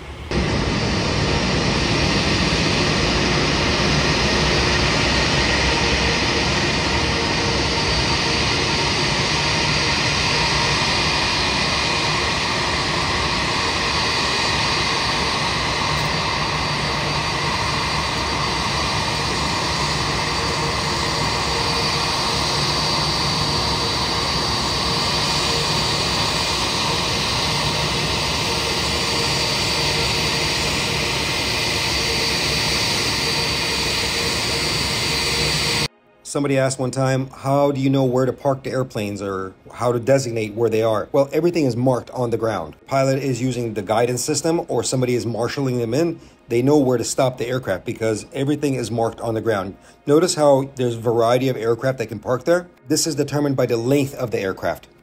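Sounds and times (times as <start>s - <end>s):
jet engine rush: 0.0s - 35.9s
faint high whine: 0.0s - 40.4s.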